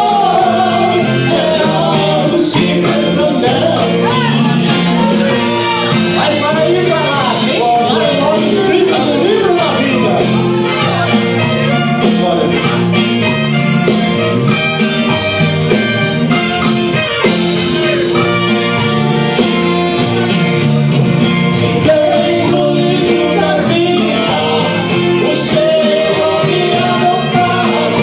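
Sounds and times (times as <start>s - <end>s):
men singing a hymn: 0.0s - 10.3s, 21.6s - 28.0s
instrumental accompaniment with beat: 0.0s - 28.0s.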